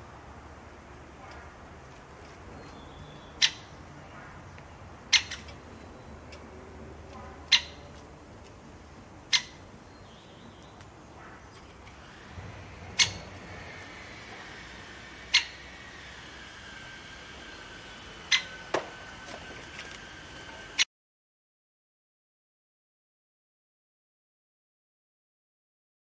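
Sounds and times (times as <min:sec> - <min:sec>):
woodpecker short sharp calls: 0:02.6 - 0:03.8, 0:05.1 - 0:06.1, 0:07.4 - 0:07.9, 0:09.3 - 0:11.8, 0:12.9 - 0:13.4, 0:15.3 - 0:15.7, 0:18.3 - 0:18.7.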